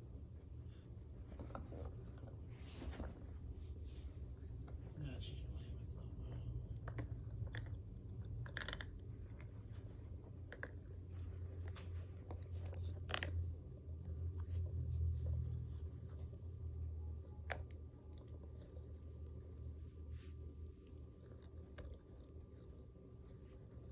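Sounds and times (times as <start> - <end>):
puppy gnawing rubber toy: 1.2 - 3.3, 6.6 - 16.2.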